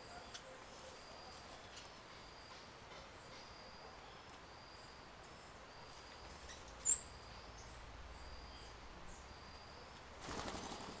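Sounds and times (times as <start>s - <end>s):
faint high-pitched bird calls: 0.0s - 11.0s
bird wingbeats: 10.2s - 11.0s.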